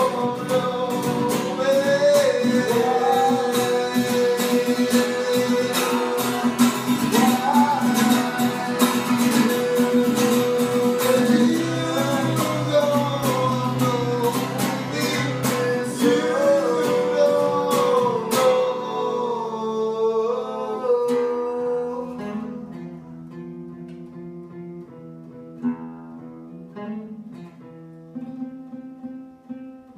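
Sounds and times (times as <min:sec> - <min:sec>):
man singing: 0:00.0 - 0:23.0
acoustic guitar: 0:00.0 - 0:29.9.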